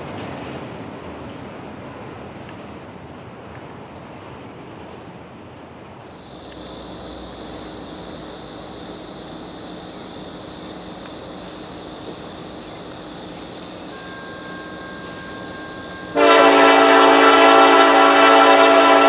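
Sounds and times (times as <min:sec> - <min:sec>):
train rumble: 0:00.0 - 0:19.0
high insect buzz: 0:06.0 - 0:19.0.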